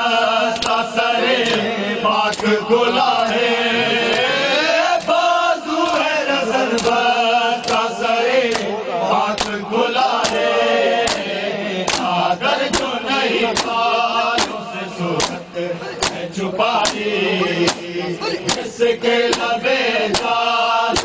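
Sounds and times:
mourners chanting in unison: 0.0 - 21.0
men slapping bare chests: 0.5 - 3.2, 4.1 - 21.0.

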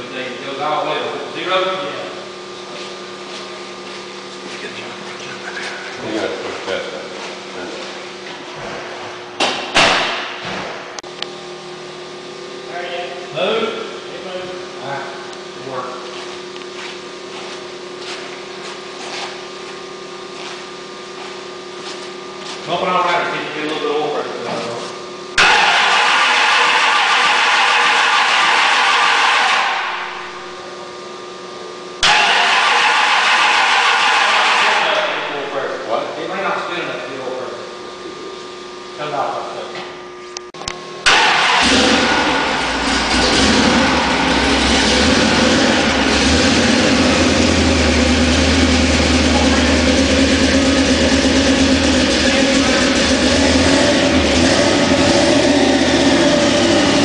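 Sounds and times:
engine idling: 41.0 - 57.0.

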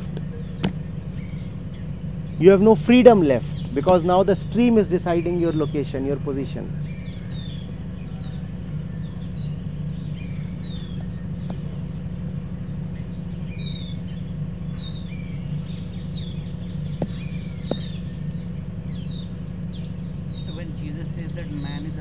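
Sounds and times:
small birds chirping: 0.0 - 22.0
steady low hum: 0.0 - 22.0.

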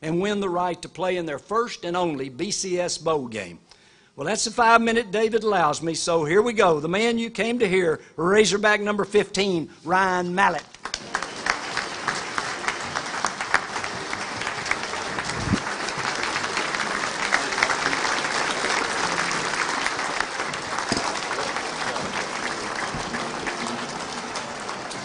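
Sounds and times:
crowd applauding: 10.7 - 25.0.

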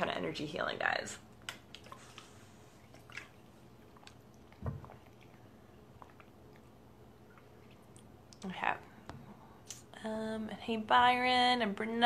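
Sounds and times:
person swallowing water: 2.8 - 8.4
soft low thump: 4.6 - 4.9.

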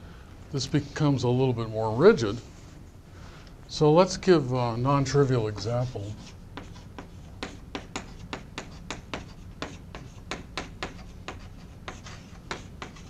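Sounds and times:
chalk tapping on blackboard: 5.5 - 13.0.

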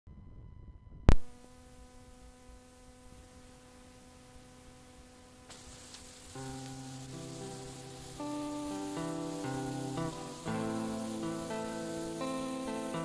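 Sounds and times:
faint steady hum: 0.1 - 13.0
tape hiss: 0.1 - 13.0
music: 5.5 - 13.0.

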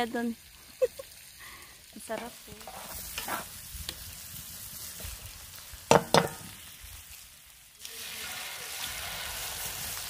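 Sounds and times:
egg frying in hot oil: 0.0 - 10.0
meat sizzling in a frying pan: 0.0 - 10.0
spatula stirring in pan: 2.1 - 3.7, 7.9 - 10.0.

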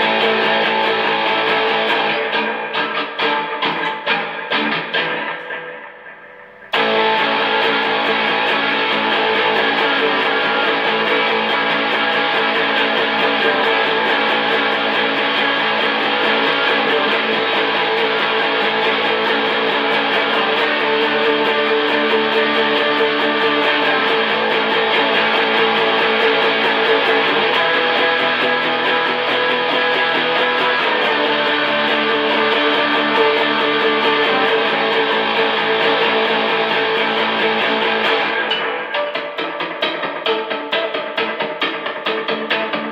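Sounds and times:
electric guitar strumming: 0.0 - 42.9.

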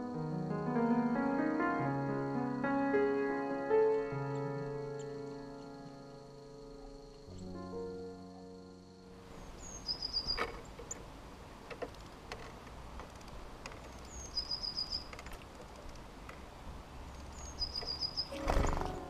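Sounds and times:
garden background sound: 0.0 - 19.0
songbird singing: 2.3 - 19.0
light ticks: 11.7 - 14.2.

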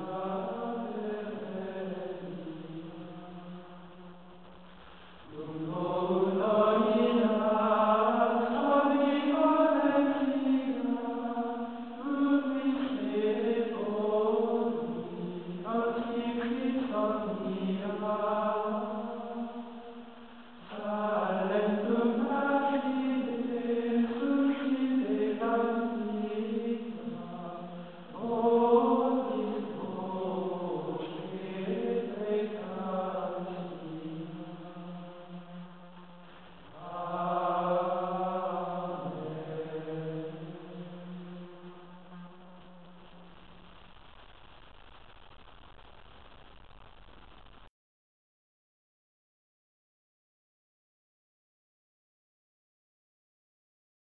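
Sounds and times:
choir chanting: 0.0 - 4.2, 5.3 - 43.0.

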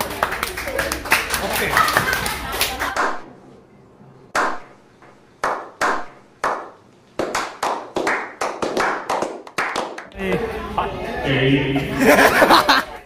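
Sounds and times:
hand claps with echo: 5.4 - 10.1.

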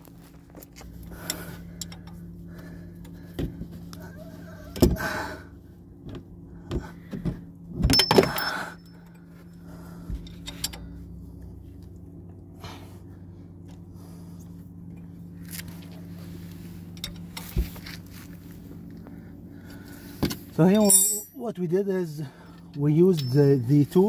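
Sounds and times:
steady low hum: 0.0 - 24.0
metal wrench clinking and knocking: 20.7 - 21.4, 23.1 - 23.6.

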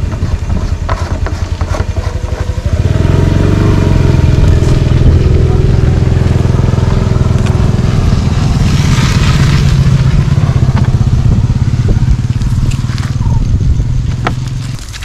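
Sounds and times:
small engine idling: 0.0 - 15.0.

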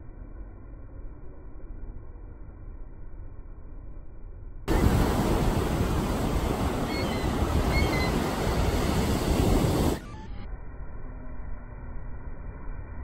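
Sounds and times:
ocean surf breaking: 4.7 - 10.2
wind noise: 4.7 - 10.4
gull calls: 6.8 - 8.4.

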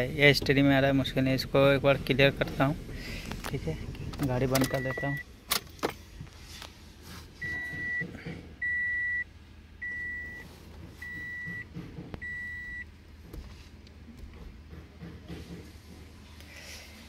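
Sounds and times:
high-pitched electronic beeps: 4.6 - 5.2.

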